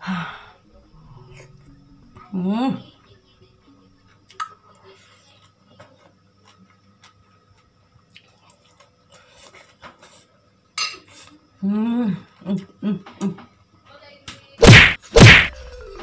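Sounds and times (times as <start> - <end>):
quiet chewing: 4.0 - 10.3.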